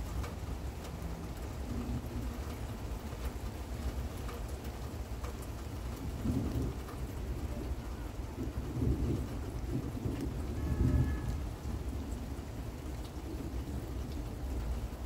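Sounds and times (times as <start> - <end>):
steady rain: 0.0 - 15.0
distant thunder rumbling: 5.7 - 15.0.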